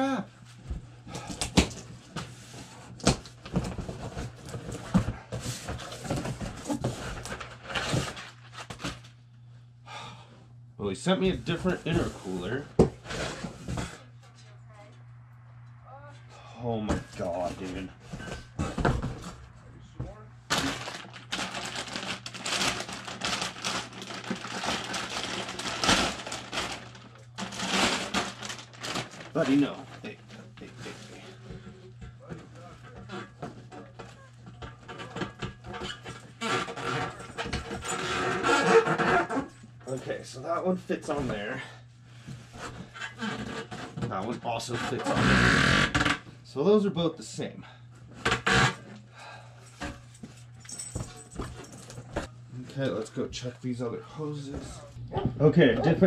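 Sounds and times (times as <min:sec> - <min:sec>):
plastic and paper crinkling: 0:20.5 - 0:31.6
contents rustling: 0:20.5 - 0:37.9.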